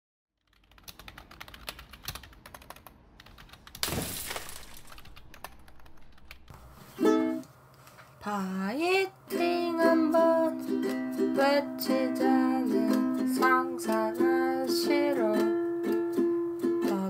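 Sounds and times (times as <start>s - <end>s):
ukulele chord strummed: 6.9s - 7.5s, 9.3s - 17.0s.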